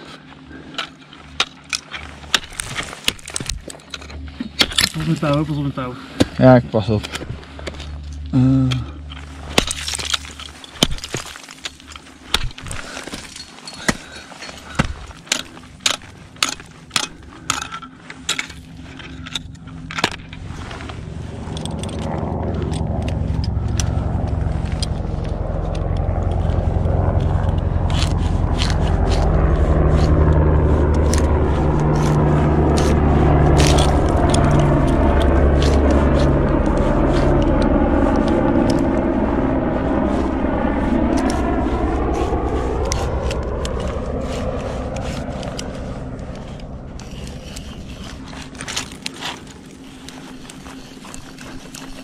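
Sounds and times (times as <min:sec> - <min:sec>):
low rumble: 0:02.0 - 0:50.0
ice axes striking ice: 0:09.4 - 0:18.5.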